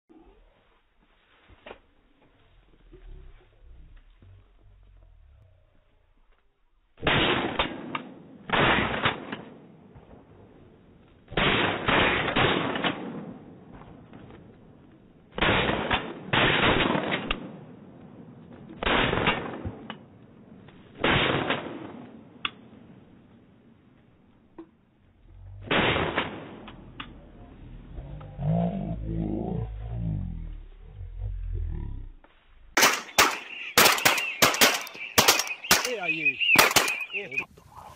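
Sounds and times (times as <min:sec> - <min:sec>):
shotgun blasts with echo: 0:07.0 - 0:10.6, 0:11.3 - 0:14.4, 0:15.3 - 0:20.0, 0:21.0 - 0:22.8, 0:25.6 - 0:27.2, 0:32.8 - 0:37.3.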